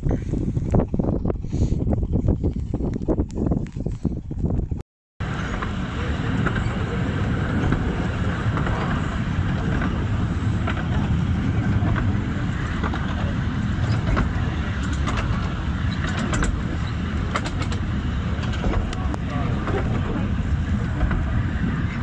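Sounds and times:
miniature train running rumble: 5.2s - 22.0s.

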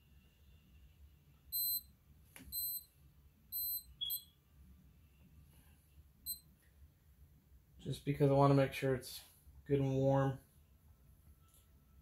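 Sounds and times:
high-pitched timer beeps: 1.5s - 1.9s, 2.5s - 2.9s, 3.5s - 4.4s, 6.3s - 6.5s.

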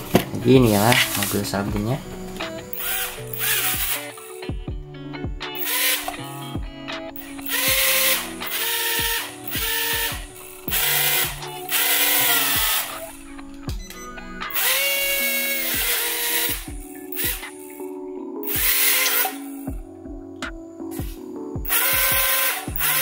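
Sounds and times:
toy drone motors whining: 2.8s - 4.3s, 5.6s - 6.2s, 7.2s - 13.2s, 14.5s - 17.8s, 18.5s - 19.6s, 21.7s - 23.0s.

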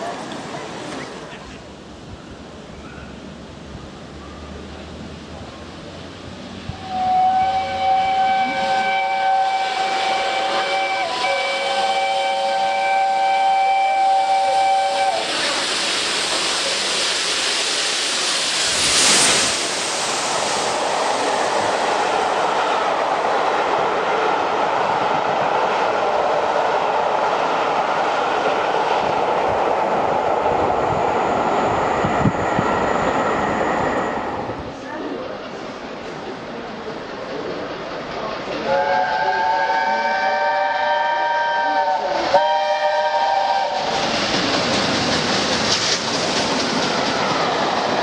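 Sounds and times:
train rushing past: 0.0s - 48.0s
steam locomotive whistle: 6.7s - 15.6s, 38.6s - 44.0s.

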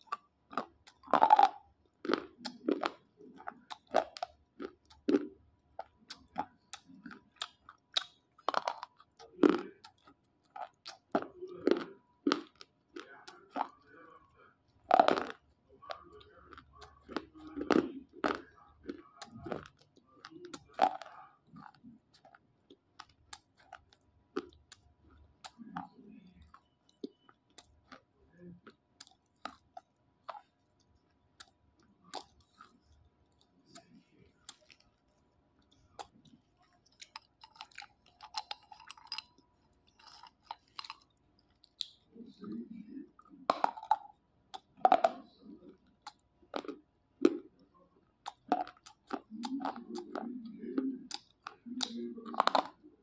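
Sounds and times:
crisp crackles and clicks: 29.0s - 44.0s
pencils crunching between teeth: 35.7s - 42.0s, 48.2s - 52.8s.

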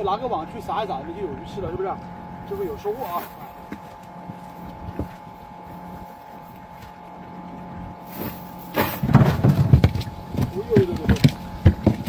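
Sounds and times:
faint steady hum: 0.0s - 12.0s
rustling handling noise: 2.5s - 7.0s.

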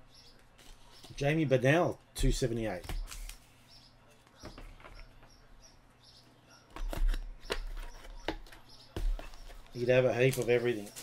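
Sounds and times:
cards tapping and rustling: 2.3s - 3.4s, 6.7s - 11.0s.

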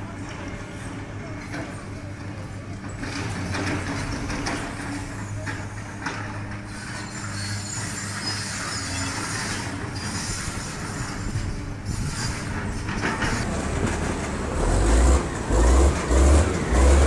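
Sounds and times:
excavator rumbling surges: 7.8s - 17.0s.

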